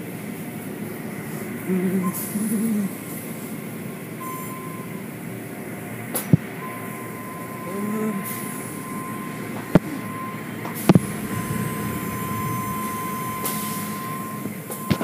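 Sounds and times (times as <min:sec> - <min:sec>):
car wash machinery: 0:05.4 - 0:15.0.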